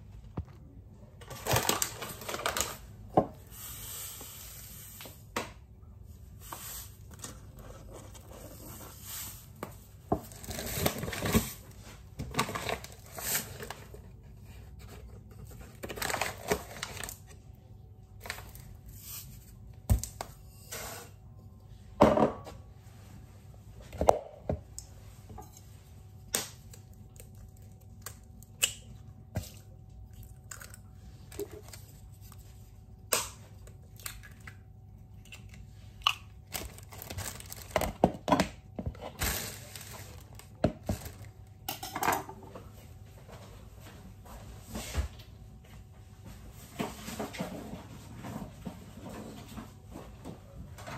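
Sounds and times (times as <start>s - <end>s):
packaging rustling and tearing: 1.3s - 2.9s, 10.3s - 13.9s, 15.6s - 17.3s, 36.4s - 38.0s, 39.1s - 41.3s.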